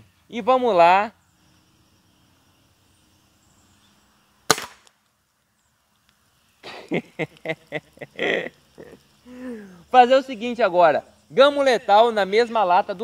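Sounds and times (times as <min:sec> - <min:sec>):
air rifle shot crack: 0:04.5 - 0:05.0.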